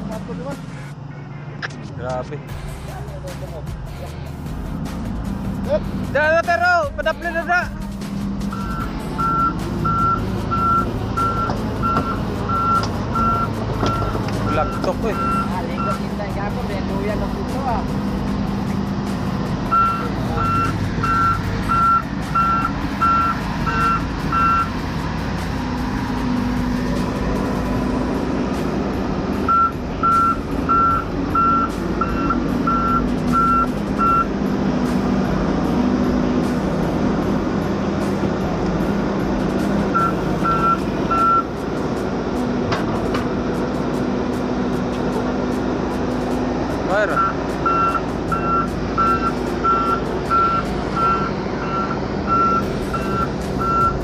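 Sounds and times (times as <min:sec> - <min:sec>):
diesel engine hum: 0:00.0 - 0:54.0
backup alarm beeping: 0:08.5 - 0:16.0, 0:19.7 - 0:24.7, 0:29.5 - 0:34.3, 0:39.9 - 0:41.5, 0:47.2 - 0:54.0.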